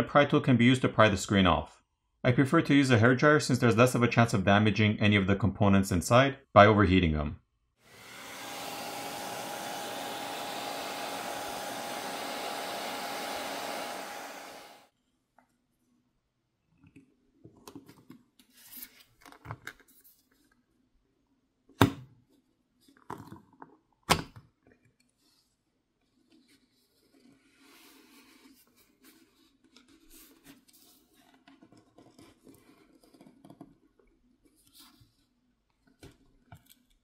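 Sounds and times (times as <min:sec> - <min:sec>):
hairdryer blowing: 0:07.9 - 0:14.9.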